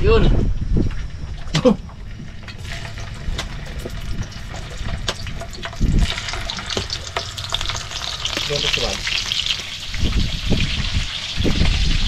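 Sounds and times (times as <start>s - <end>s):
crackling pops: 1.4s - 12.0s
sausages sizzling in a pan: 2.6s - 12.0s.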